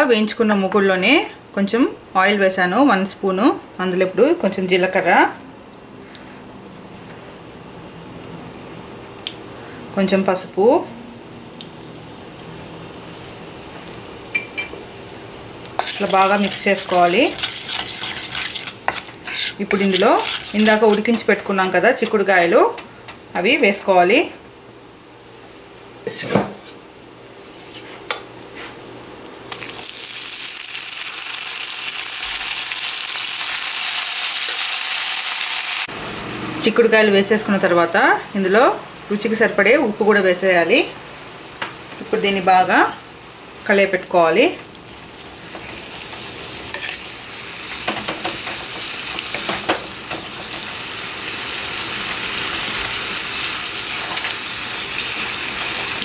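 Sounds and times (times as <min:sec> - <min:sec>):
beans sizzling in hot oil: 0:11.4 - 0:23.5, 0:29.5 - 0:36.0, 0:41.8 - 0:56.0
wooden spatula stirring: 0:15.8 - 0:22.1.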